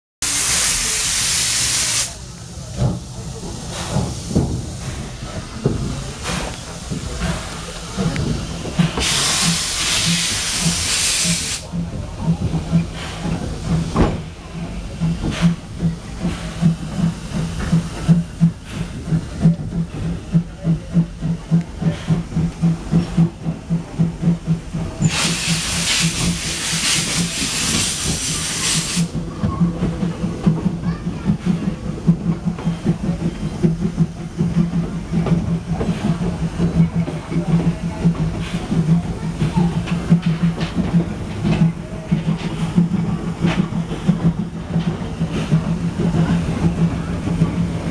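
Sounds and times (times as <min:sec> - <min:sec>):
loud hiss of steam: 0:00.2 - 0:23.4, 0:24.0 - 0:29.3
locomotive exhaust chuffs: 0:00.3 - 0:47.9
engine rhythmic pulsing: 0:11.6 - 0:28.2.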